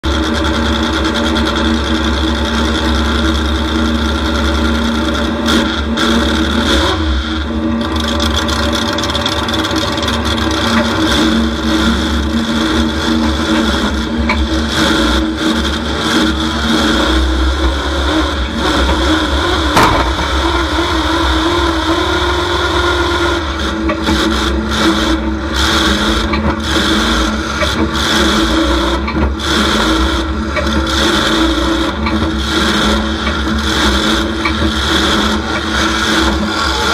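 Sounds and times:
truck engine revving: 0.0s - 36.9s
single sharp knock: 19.8s - 20.3s.

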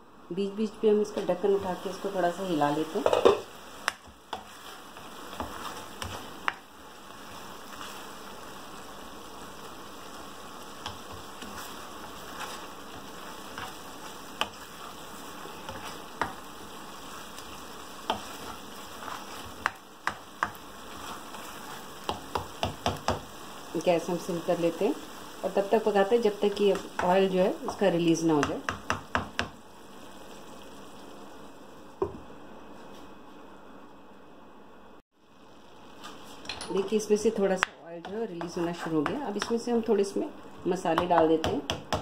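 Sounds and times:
paste sizzling in oil: 1.0s - 32.0s
spatula scraping and clicking on pan: 17.4s - 23.2s.

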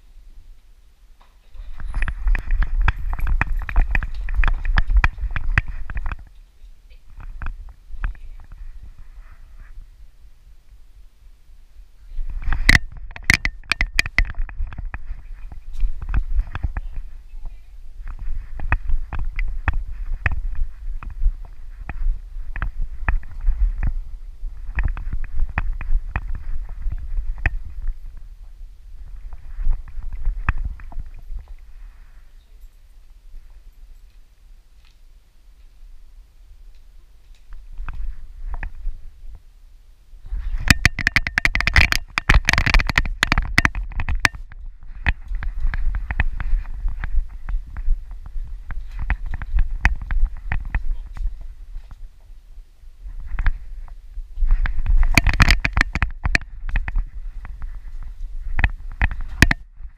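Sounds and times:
camera handling rumble: 1.7s - 6.4s, 12.2s - 17.2s, 18.0s - 28.3s, 29.0s - 31.7s, 40.3s - 52.1s, 53.1s - 59.9s
knocks and clicks: 12.4s - 15.0s, 40.6s - 46.3s, 54.8s - 57.0s, 58.6s - 59.6s.

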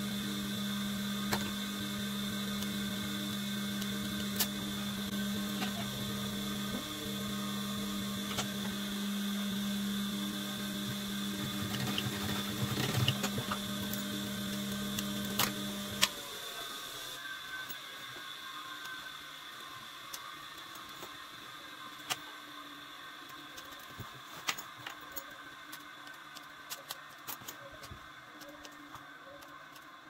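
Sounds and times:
sewing machine motor humming: 0.0s - 17.2s.

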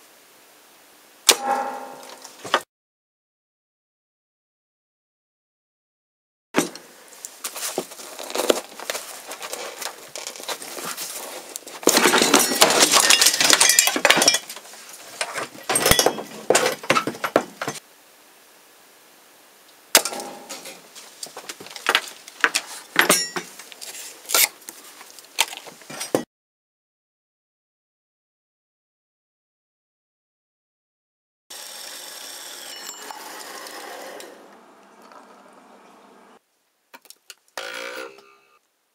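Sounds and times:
hard objects clattering: 7.5s - 17.8s, 20.0s - 24.1s.

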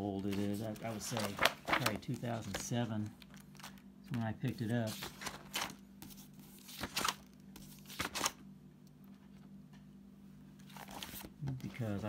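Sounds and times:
faint low hum: 0.0s - 12.0s
paper pages rustling: 0.1s - 8.4s, 10.6s - 12.0s.

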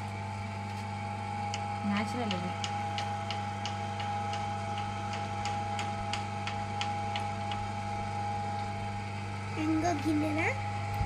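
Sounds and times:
potter's wheel motor hum: 0.0s - 11.0s
regular ticking: 1.5s - 7.7s.

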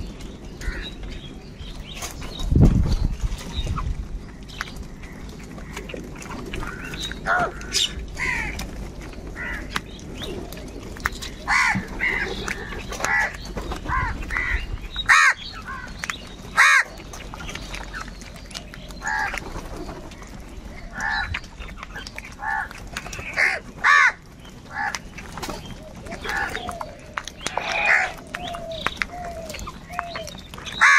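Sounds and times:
crows cawing: 0.6s - 1.0s, 6.6s - 8.7s, 9.3s - 9.8s, 11.4s - 16.0s, 16.6s - 17.0s, 19.0s - 19.4s, 22.4s - 25.0s, 26.2s - 30.2s.

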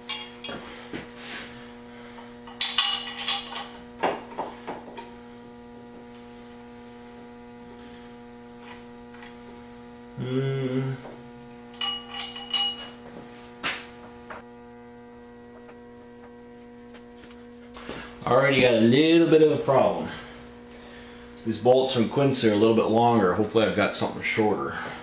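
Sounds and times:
electrical hum: 0.0s - 25.0s
metal bolts and nuts clinking: 2.5s - 3.8s, 11.8s - 13.0s.

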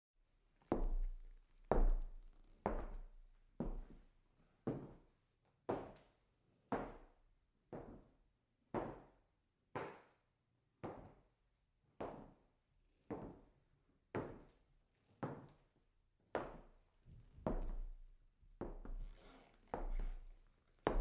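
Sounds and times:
footsteps on a wooden floor: 0.7s - 4.0s, 16.4s - 18.0s, 18.6s - 21.0s.

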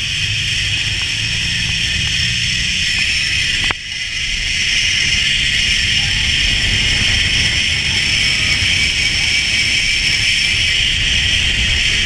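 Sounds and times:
wind rumbling on microphone: 0.0s - 12.0s
zip line trolley whirring: 0.0s - 12.0s.

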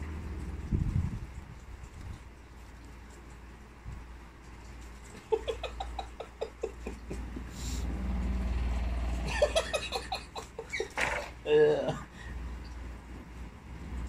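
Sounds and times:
low steady hum: 0.0s - 14.0s
person giggling: 5.2s - 7.5s, 9.2s - 12.1s.

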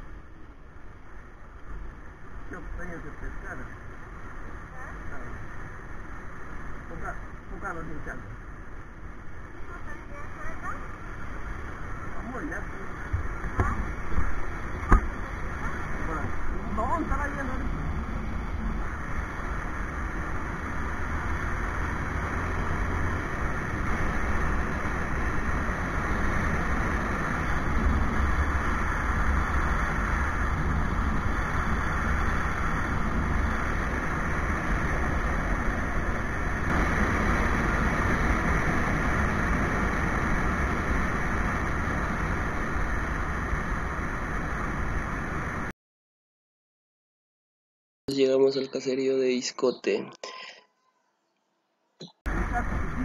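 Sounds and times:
road noise: 0.0s - 45.7s, 52.0s - 53.0s
wind noise: 8.0s - 45.7s, 52.2s - 53.0s.

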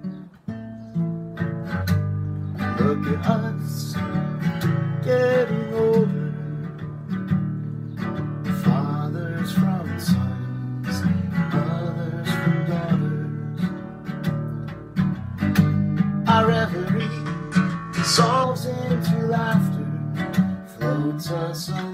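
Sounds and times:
acoustic guitar strumming: 0.0s - 21.9s
man singing: 2.7s - 6.8s, 8.6s - 13.8s, 16.2s - 21.9s.

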